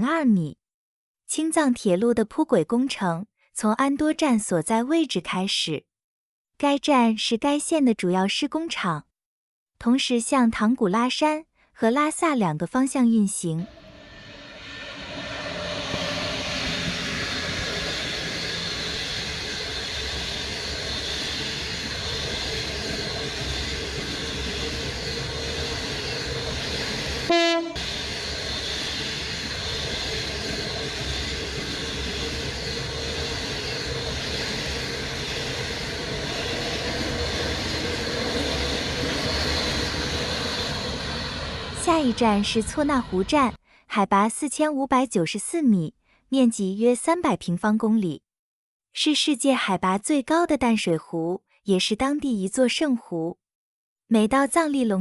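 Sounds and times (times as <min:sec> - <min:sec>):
train rumbling on track: 0:13.3 - 0:43.6
train horn blast: 0:27.3 - 0:27.8.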